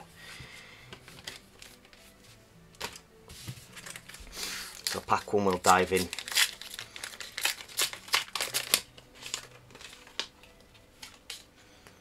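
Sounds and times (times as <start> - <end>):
plastic wrapper tearing: 3.8 - 11.5.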